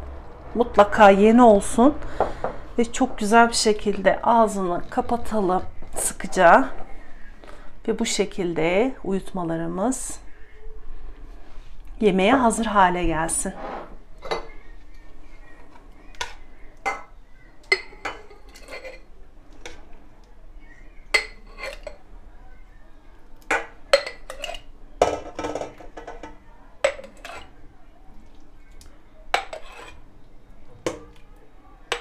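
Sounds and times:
spoon scraping: 16.0s - 20.0s, 21.1s - 22.0s, 23.5s - 24.7s, 25.6s - 27.6s, 28.3s - 30.1s
spoon clinking against pot and jar: 17.7s - 19.1s, 21.1s - 22.0s, 23.5s - 27.5s, 29.4s - 30.0s.

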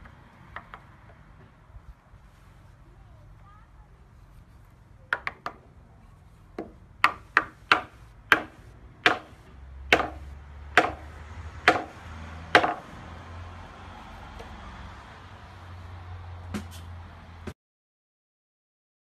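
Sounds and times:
mallet striking wooden beam: 6.6s - 12.9s, 16.5s - 16.9s.

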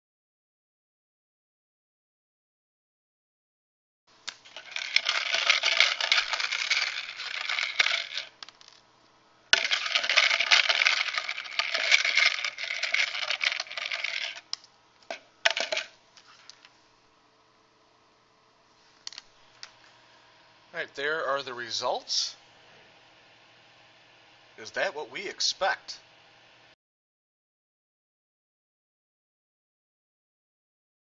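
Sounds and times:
cubes rattling in plastic bin: 4.3s - 8.8s, 9.6s - 14.4s, 15.1s - 15.9s.

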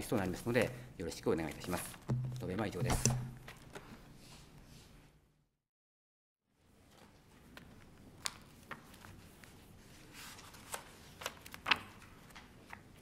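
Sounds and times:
papers rustling: 1.4s - 4.0s, 6.9s - 13.0s
sharp clicks and taps: 2.1s - 3.6s
pages turning: 6.9s - 13.0s.

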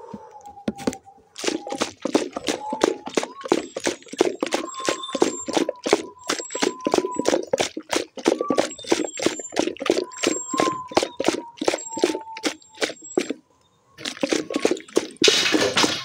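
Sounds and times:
rapid irregular tapping and clicking: 1.4s - 13.4s, 14.0s - 16.0s.

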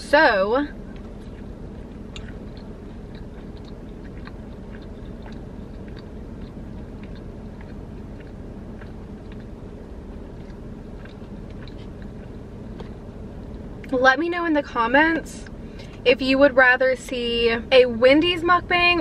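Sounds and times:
steady low hum: 0.0s - 19.0s
wet chewing mouth clicks: 0.8s - 14.0s.

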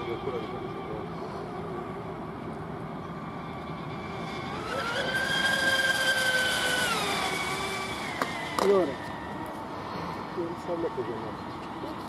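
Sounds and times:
electric motor whining: 0.0s - 9.6s.

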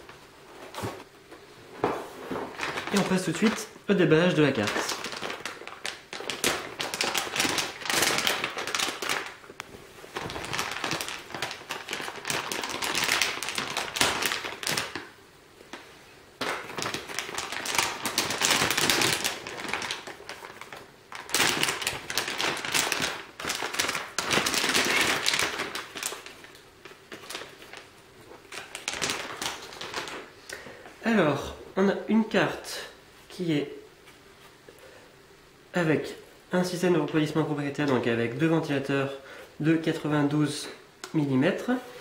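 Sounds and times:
plastic bag crinkling: 2.1s - 15.8s, 16.4s - 30.6s.

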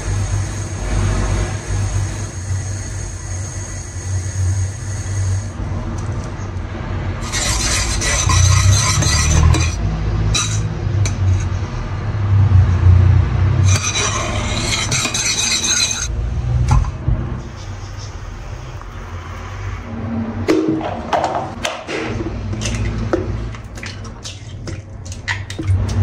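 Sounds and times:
metal spoon scraping a pan: 7.2s - 11.8s, 13.6s - 16.1s.

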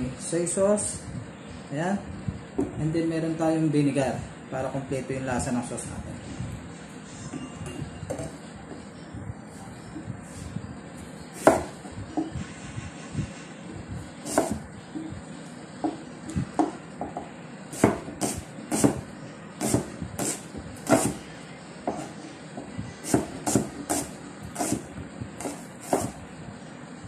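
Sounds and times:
knife chopping on cutting board: 11.4s - 12.3s, 14.2s - 14.6s, 16.6s - 21.2s, 23.0s - 26.2s.

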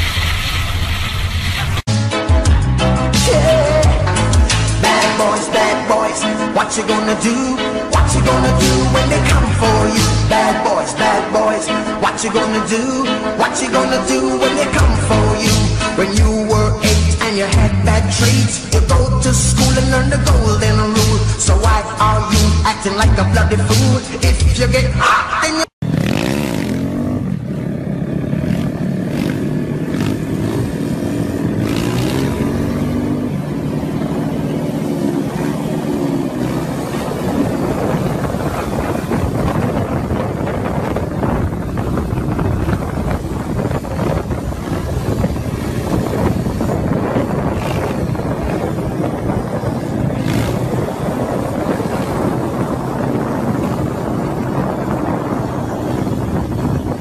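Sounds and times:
motorcycle engines revving: 2.4s - 23.1s, 25.8s - 57.0s
wind noise on microphone: 26.4s - 57.0s.

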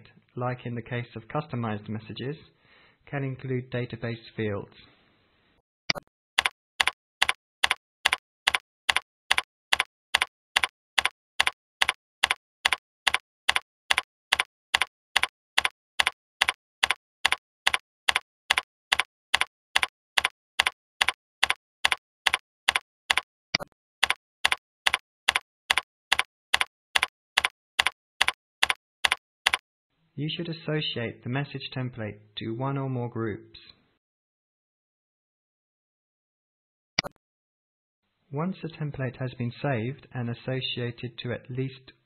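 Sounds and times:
computer keyboard typing: 5.9s - 29.6s.

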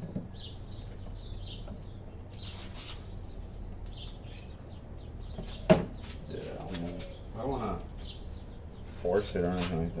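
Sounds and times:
birds chirping: 0.0s - 10.0s
low steady hum: 0.0s - 10.0s.

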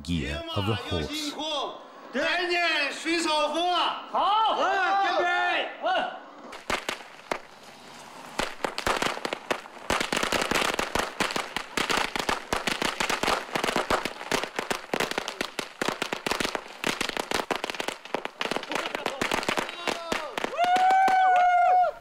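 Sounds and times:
firecrackers banging: 6.5s - 21.9s.

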